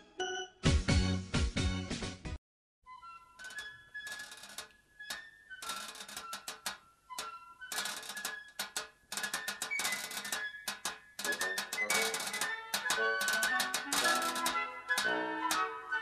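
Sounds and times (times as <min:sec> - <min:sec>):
clicking percussion rhythm: 0:05.6 - 0:15.8.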